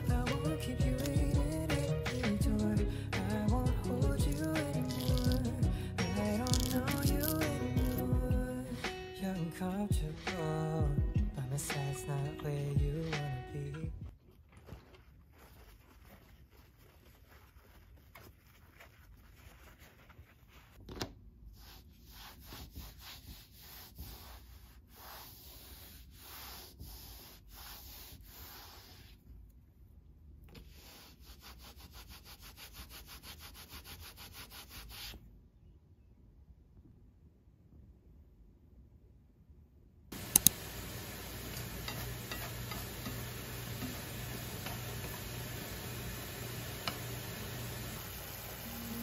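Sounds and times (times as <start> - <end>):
cloth rubbing on a desktop: 14.4 - 20.8, 21.5 - 29.2, 30.5 - 35.2, 40.1 - 49.0.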